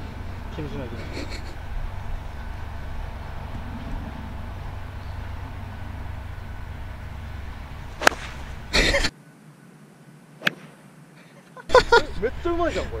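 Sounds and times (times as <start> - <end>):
low steady rumble: 0.0 - 11.1
golf club striking ball: 4.3 - 8.7, 10.4 - 10.8.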